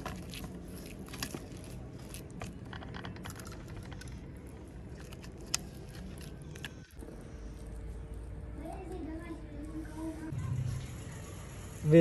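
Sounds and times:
hands working fish in batter: 0.0 - 6.9.

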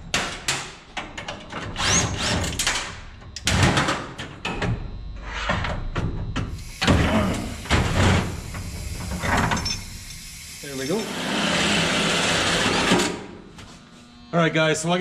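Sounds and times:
power tool whining: 6.5 - 13.2
metal parts clanking: 9.3 - 9.9.

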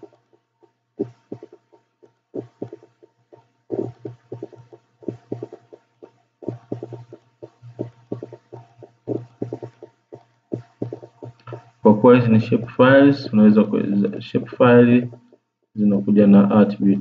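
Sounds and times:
computer mouse clicking rapidly: 0.0 - 11.8.

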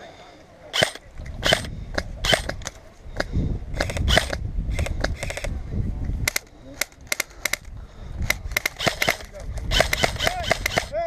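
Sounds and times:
airsoft gunshots: 0.7 - 2.7, 8.3 - 11.0
low microphone rumble: 1.0 - 6.3.

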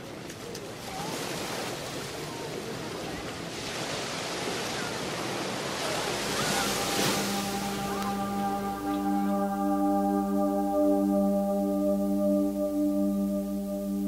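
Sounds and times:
surf washing onto beach: 0.0 - 13.8
sustained low musical tone: 6.1 - 14.0.

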